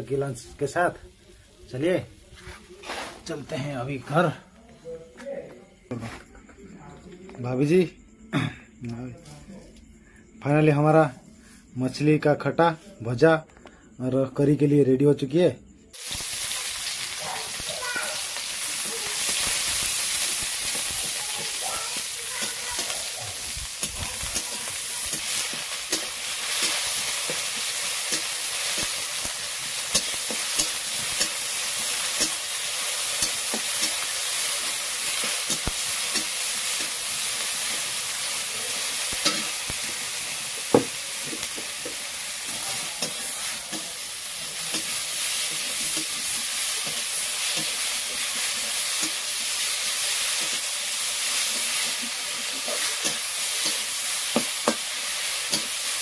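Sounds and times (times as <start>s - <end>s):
food sizzling in hot oil: 15.9s - 56.0s
spatula knocking on pan: 40.7s - 42.0s, 54.3s - 54.9s.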